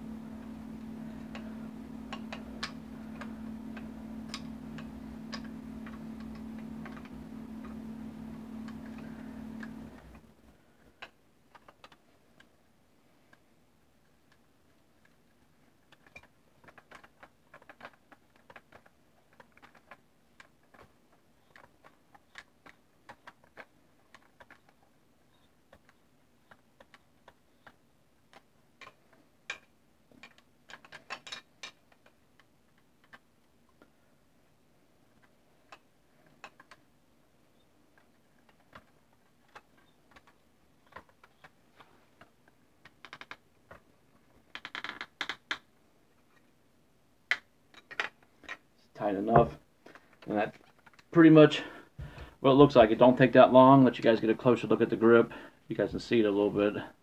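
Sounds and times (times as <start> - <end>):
low hum: 0.0 - 10.8.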